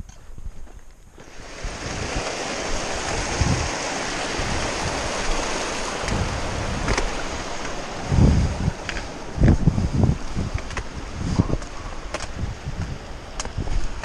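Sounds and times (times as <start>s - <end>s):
creek rushing over rocks: 1.2s - 14.0s.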